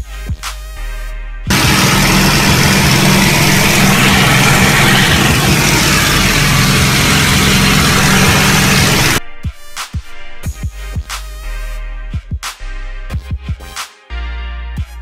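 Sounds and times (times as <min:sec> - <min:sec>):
propeller aircraft engine droning: 0:01.5 - 0:09.2.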